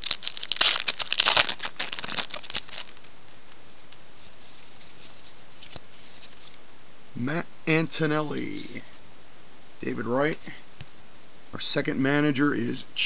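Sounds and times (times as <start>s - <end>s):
card pack wrapper crinkling: 0.0s - 3.6s.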